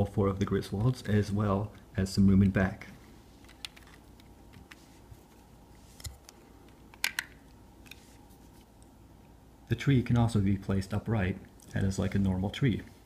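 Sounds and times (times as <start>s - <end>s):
plastic bricks clicking: 6.9s - 7.4s.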